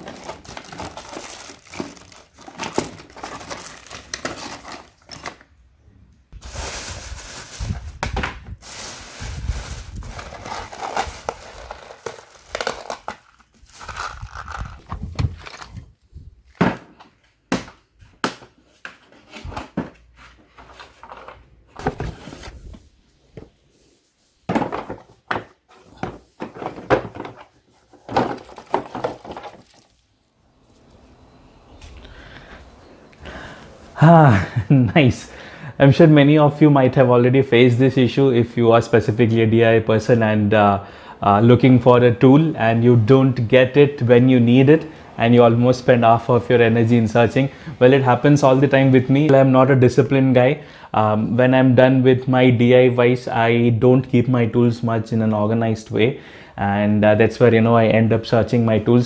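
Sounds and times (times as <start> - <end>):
plastic wrappers crinkling: 0.0 - 5.6, 6.4 - 16.0, 27.7 - 31.0
objects knocking: 24.5 - 29.9.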